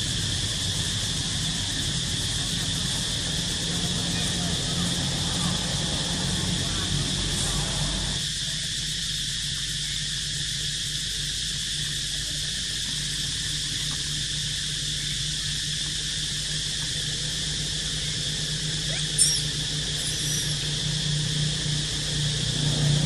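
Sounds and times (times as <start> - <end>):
insect drone: 0.0 - 23.0
short high squeak: 18.9 - 20.6.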